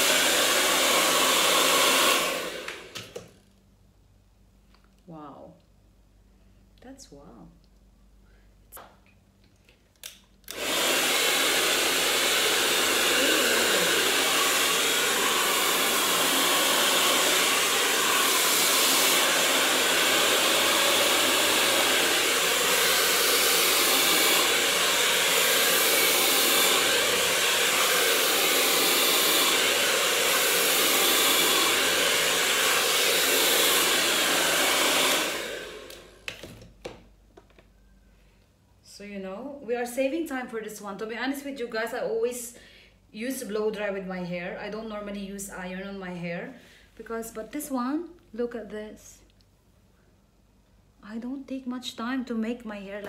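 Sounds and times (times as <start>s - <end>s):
hair dryer blowing: 0.0s - 3.4s, 10.5s - 36.6s.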